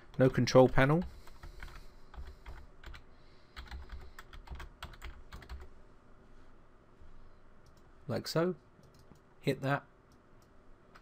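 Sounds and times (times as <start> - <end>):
typing on computer keyboard: 0.2 - 3.0, 3.6 - 5.7, 8.8 - 9.2.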